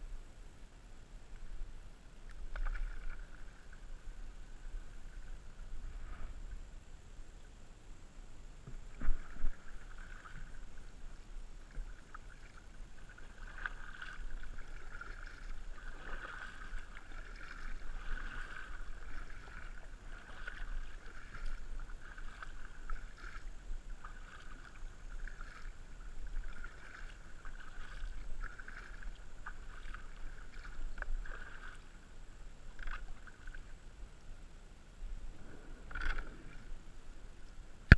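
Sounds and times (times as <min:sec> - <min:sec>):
paddle splashing in water: 0:02.3 - 0:04.0, 0:08.7 - 0:32.0, 0:32.7 - 0:33.8
water trickling and gurgling: 0:08.6 - 0:32.0.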